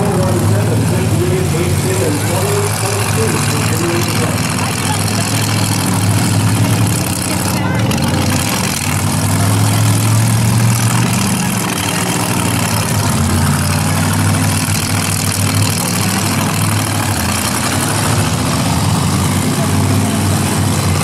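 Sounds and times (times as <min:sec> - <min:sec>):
car engines revving: 0:00.0 - 0:21.0.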